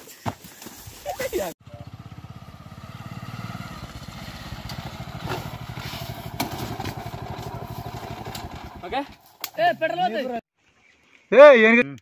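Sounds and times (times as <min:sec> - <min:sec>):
motorcycle engine running: 0:01.6 - 0:09.4
motorcycle falling over clatter: 0:06.3 - 0:08.7.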